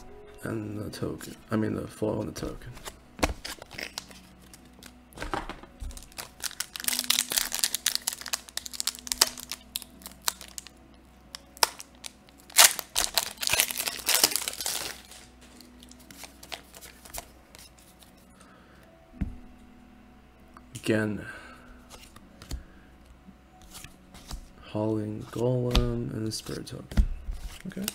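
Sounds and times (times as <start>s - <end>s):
foil wrapper crinkling and tearing: 3.3s - 5.0s, 5.9s - 17.3s, 27.5s - 27.9s.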